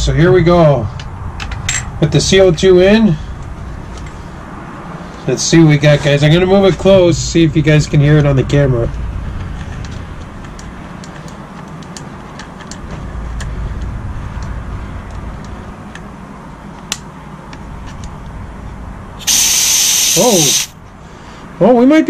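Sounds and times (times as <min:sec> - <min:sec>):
gas hissing from cartridge: 0:19.2 - 0:20.7.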